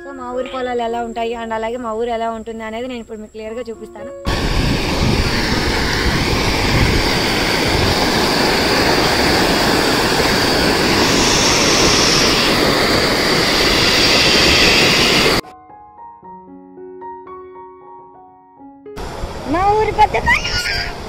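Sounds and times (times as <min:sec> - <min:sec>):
soft piano music: 0:00.0 - 0:02.0, 0:02.9 - 0:04.3, 0:15.4 - 0:19.1
water rushing over weir: 0:04.3 - 0:15.4.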